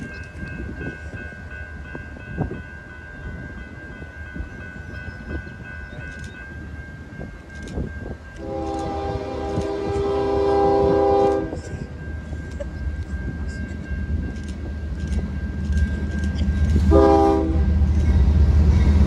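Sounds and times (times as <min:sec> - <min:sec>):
train rumble and clatter: 0:00.0 - 0:19.0
locomotive air horn blast: 0:08.4 - 0:11.6, 0:16.9 - 0:17.8.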